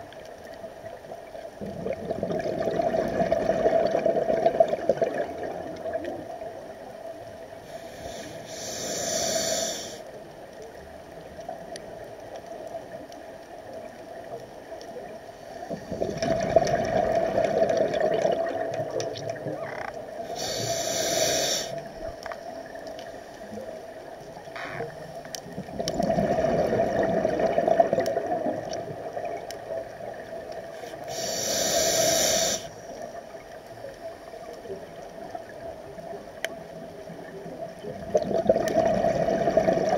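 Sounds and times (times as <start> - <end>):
exhaled bubbles rushing: 1.6 - 6.3, 15.7 - 19.7, 25.4 - 29.5, 37.5 - 39.9
regulator hissing inhale: 7.6 - 10.2, 20.2 - 22.2, 30.8 - 33.2.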